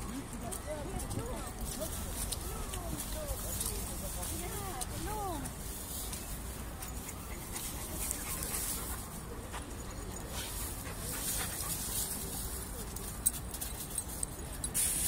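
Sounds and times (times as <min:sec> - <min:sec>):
dogs panting: 0:06.7 - 0:13.1.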